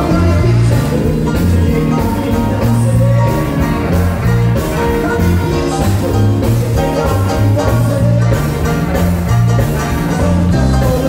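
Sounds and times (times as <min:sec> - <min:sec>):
bass notes: 0:00.0 - 0:11.0
keyboard playing: 0:00.0 - 0:11.0.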